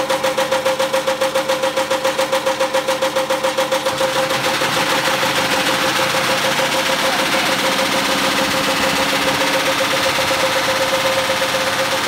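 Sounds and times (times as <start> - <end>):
rhythmic knocking: 0.0 - 12.0
steady rattle: 0.0 - 12.0
washing machine motor whine: 3.6 - 12.0.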